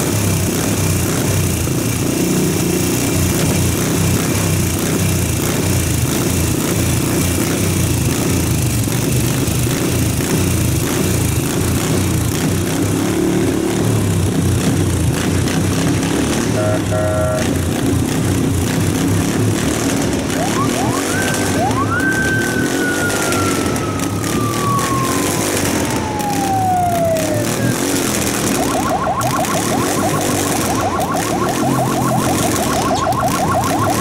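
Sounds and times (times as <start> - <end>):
motorcycle engine running: 0.0 - 34.0
short horn-like tone: 16.5 - 17.6
rapid warbling tone: 19.9 - 34.0
siren winding: 19.9 - 34.0.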